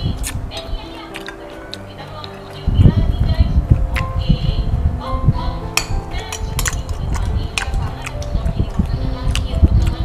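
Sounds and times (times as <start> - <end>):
background music: 0.0 - 10.0
cutlery clinking against plates: 0.2 - 2.6, 5.7 - 10.0.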